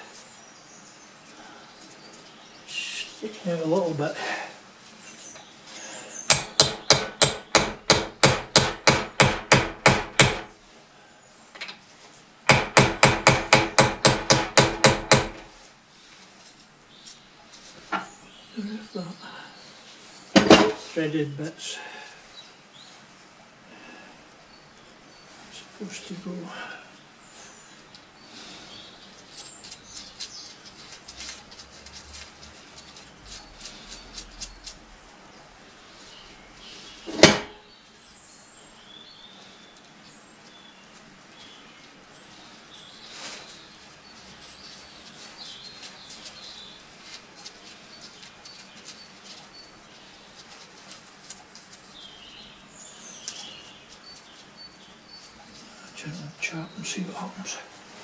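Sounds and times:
loud sharp metal knock: 6.3 - 10.5, 12.5 - 15.5, 20.4 - 20.8, 37.1 - 37.6.

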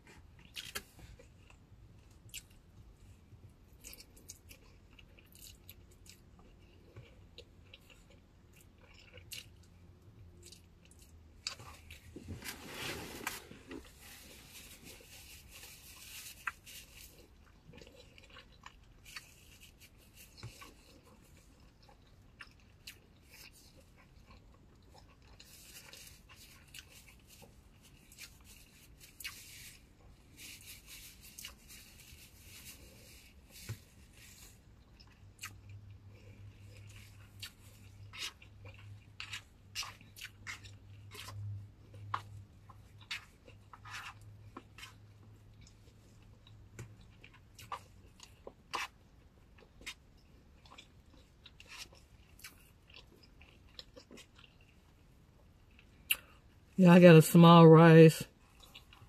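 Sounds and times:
person chewing food: 0.0 - 56.8, 58.3 - 59.0.

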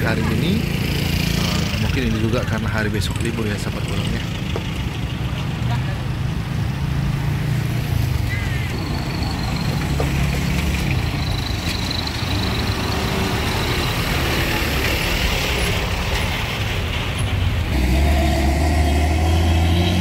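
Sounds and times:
road traffic passing: 0.0 - 20.0
deep engine drone: 17.6 - 20.0.

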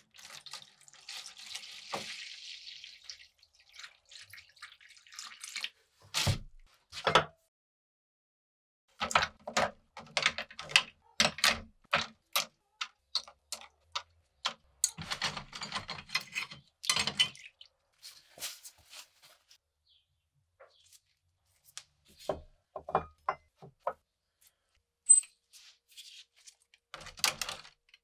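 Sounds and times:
metal toy parts clicking: 10.0 - 17.0.

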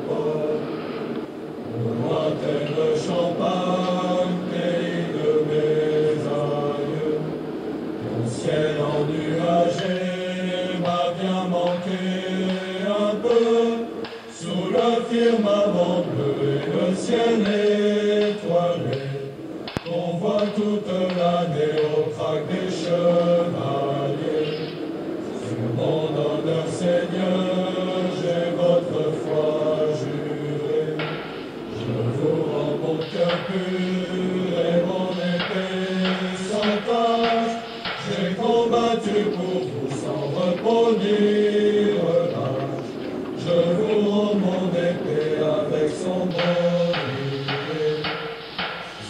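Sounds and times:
choir chanting: 0.0 - 49.0.

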